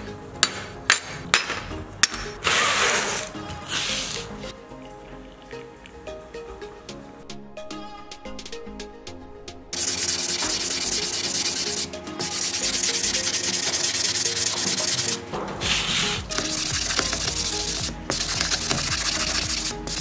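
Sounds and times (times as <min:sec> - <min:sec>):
sanding sponge scratching metal: 0:09.8 - 0:20.0.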